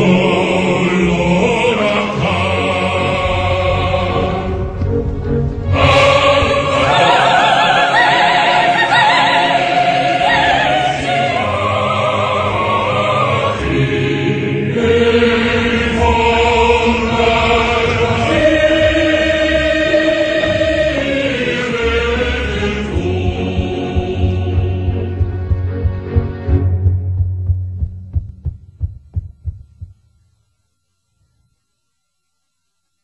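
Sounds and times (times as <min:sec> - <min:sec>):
sopranos singing with vibrato: 0:00.0 - 0:26.1
choir singing sustained chords: 0:00.0 - 0:27.1.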